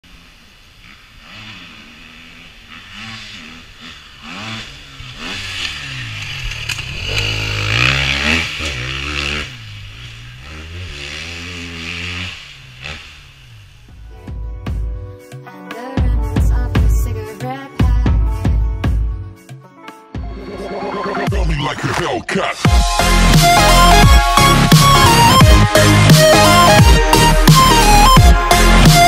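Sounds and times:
dirt bike engine revving: 0:00.0 - 0:14.0, 0:22.7 - 0:29.0.

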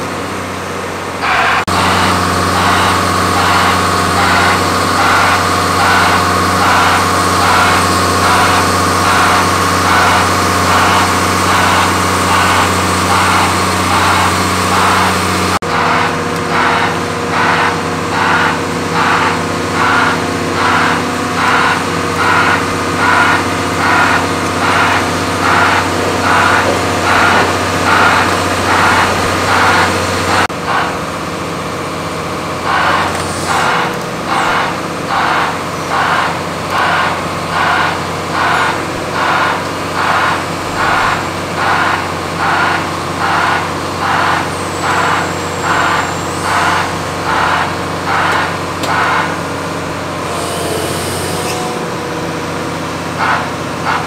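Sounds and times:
engine deep hum: 0:00.0 - 0:54.0
regular pulsing sound: 0:01.7 - 0:31.0.

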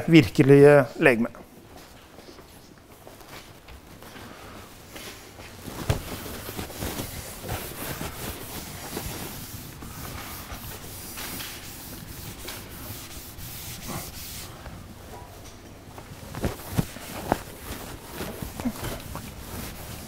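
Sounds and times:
rubbing and scraping on board: 0:06.6 - 0:14.5.

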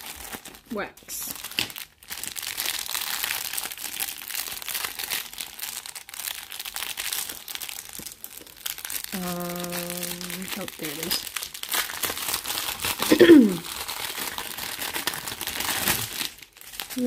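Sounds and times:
plastic bag crinkling: 0:00.0 - 0:17.0.

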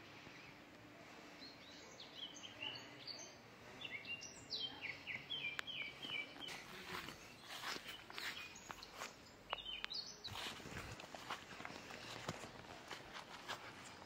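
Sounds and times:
outdoor background noise: 0:00.0 - 0:14.0
bird chirping: 0:01.4 - 0:10.7.

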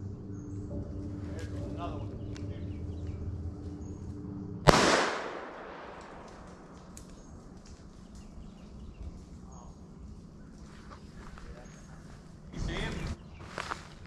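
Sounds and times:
rifle shot with echo: 0:04.6 - 0:07.1.

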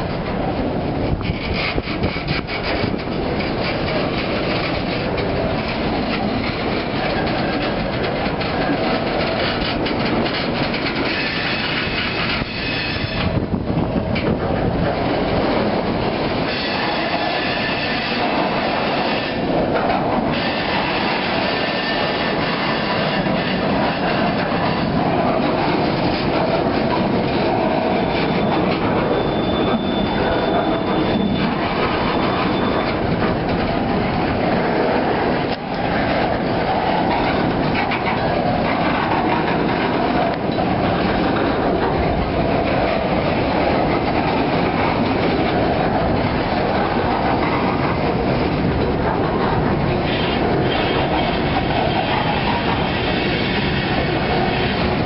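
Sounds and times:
freight train rumbling past: 0:00.0 - 0:55.0
faint high squeal: 0:28.2 - 0:33.0.

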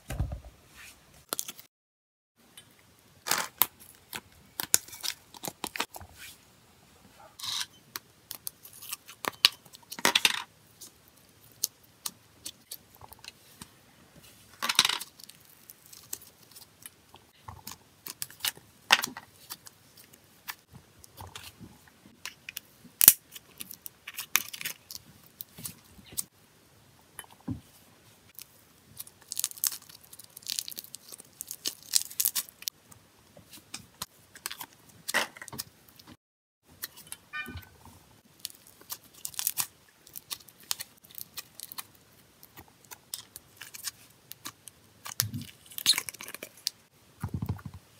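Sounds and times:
slime crackling and squishing: 0:15.0 - 0:21.6, 0:28.4 - 0:32.8, 0:38.2 - 0:46.9.

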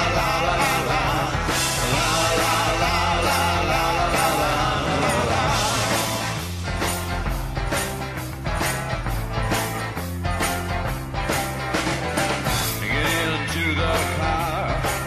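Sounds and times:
bass line: 0:00.0 - 0:15.0
rock song with singing: 0:00.0 - 0:15.0.

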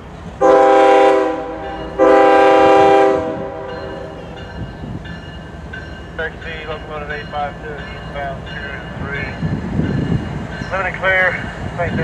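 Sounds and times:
train rumbling: 0:00.0 - 0:12.0
locomotive air horn blasts: 0:00.4 - 0:04.3.

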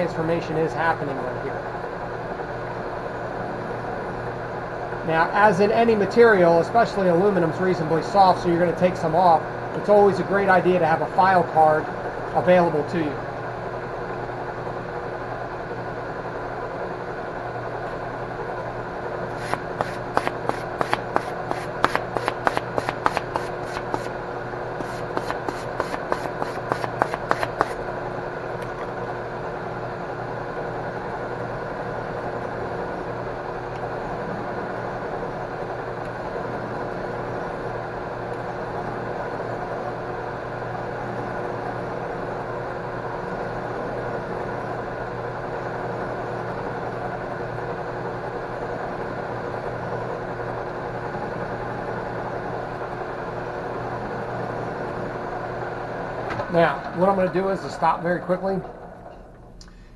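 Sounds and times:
metal lathe humming: 0:19.0 - 0:28.4
hand file scratching metal: 0:19.3 - 0:24.1, 0:24.8 - 0:27.8.

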